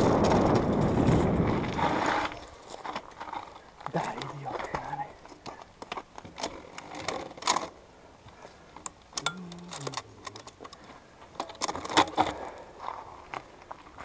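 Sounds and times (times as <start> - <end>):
mountain bike rattling and clicking: 0.0 - 4.8, 5.8 - 7.8, 8.8 - 13.2
tyres crunching on loose stones: 0.0 - 14.0.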